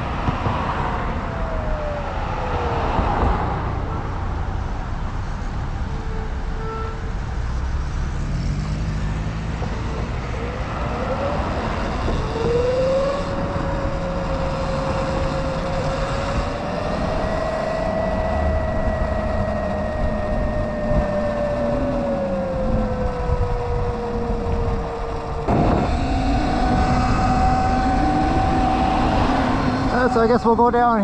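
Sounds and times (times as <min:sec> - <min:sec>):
low rumble: 0:09.4 - 0:31.0
electric motorbike motor whine: 0:09.6 - 0:31.0.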